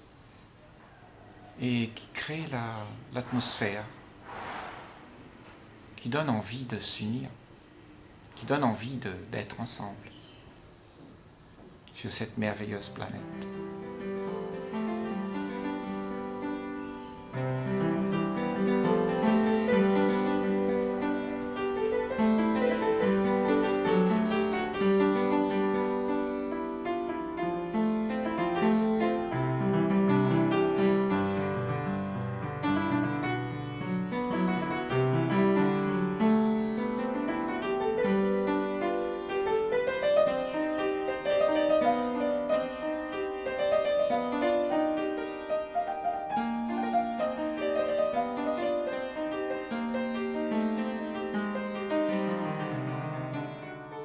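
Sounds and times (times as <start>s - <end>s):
piano music: 12.4s - 54.0s.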